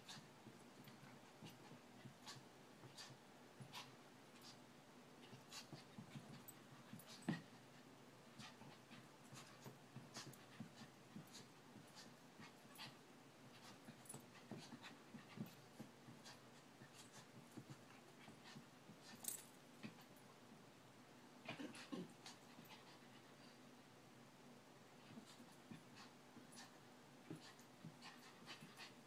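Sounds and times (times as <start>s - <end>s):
paws tapping and brushing on rug: 5.2s - 20.2s.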